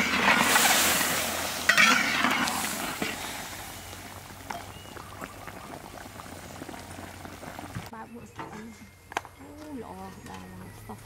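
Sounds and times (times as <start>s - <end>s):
liquid sizzling in wok: 0.0s - 7.9s
soft simmering with pops: 0.0s - 10.5s.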